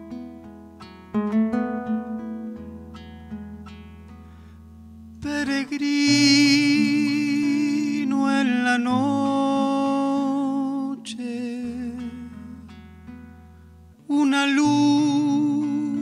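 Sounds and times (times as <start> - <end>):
acoustic guitar: 0.0 - 16.0
person humming melody: 14.1 - 16.0.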